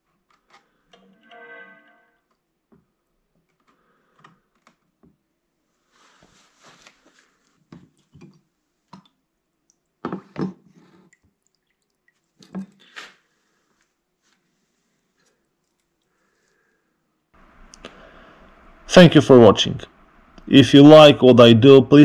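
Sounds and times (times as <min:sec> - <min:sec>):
liquid sloshing and dripping: 0:07.8 - 0:12.9, 0:15.2 - 0:16.5.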